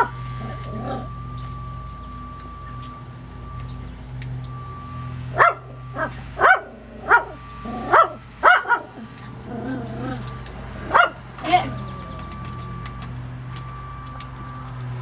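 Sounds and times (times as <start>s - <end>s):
dog barking: 0.0s - 1.1s, 5.4s - 9.9s, 10.8s - 11.6s
steady hum: 0.0s - 12.9s.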